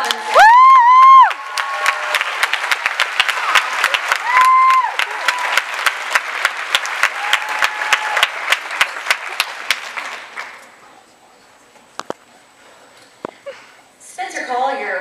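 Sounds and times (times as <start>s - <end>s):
audience applauding: 0.0s - 10.8s
sharp claps close to microphone: 1.6s - 10.7s
high held cheering calls: 3.4s - 5.6s.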